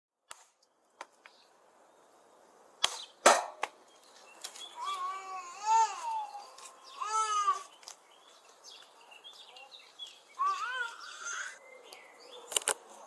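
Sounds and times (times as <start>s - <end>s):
digging tool thudding into soil: 2.8s - 3.7s.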